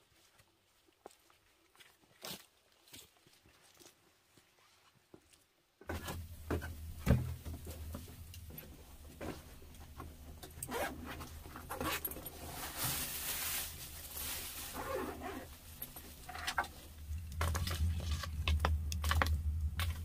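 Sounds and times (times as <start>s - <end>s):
zipper pulled: 10.6s - 12.6s, 14.7s - 15.6s
fabric bag rustling: 10.6s - 20.0s.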